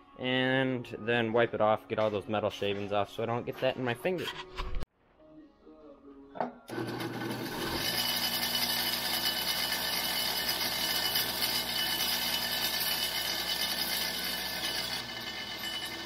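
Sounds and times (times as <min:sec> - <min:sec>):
wire wheel spinning: 0:06.7 - 0:16.0.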